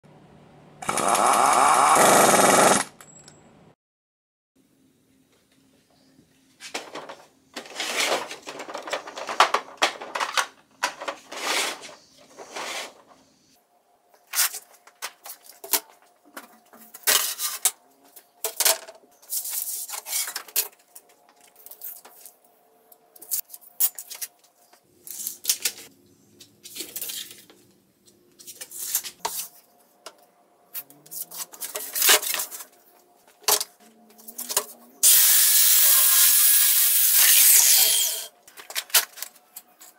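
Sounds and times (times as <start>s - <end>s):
circular saw cutting wood: 0.8s - 2.9s, 35.0s - 38.3s
plastic and wood clattering: 6.6s - 13.1s.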